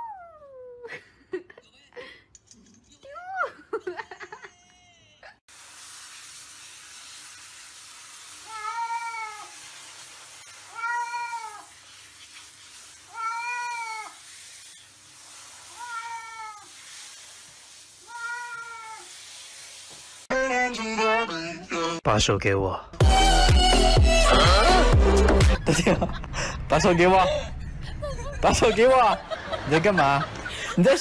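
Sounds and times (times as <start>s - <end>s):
cat meowing: 10.6s - 11.7s, 13.1s - 14.2s, 15.7s - 16.7s, 18.0s - 19.1s.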